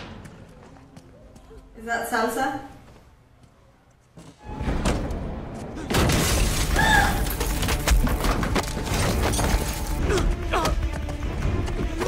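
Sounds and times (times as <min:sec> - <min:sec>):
dramatic music score: 0:04.4 - 0:12.0.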